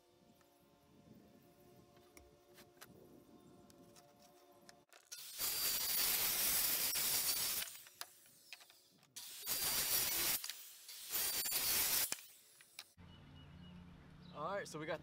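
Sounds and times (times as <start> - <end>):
circular saw cutting wood: 5.1 - 13.0.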